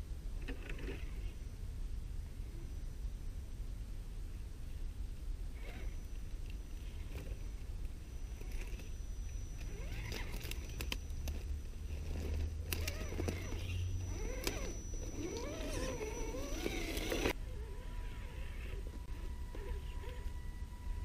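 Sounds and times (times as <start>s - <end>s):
rc car electric motor whining: 5.5s - 21.0s.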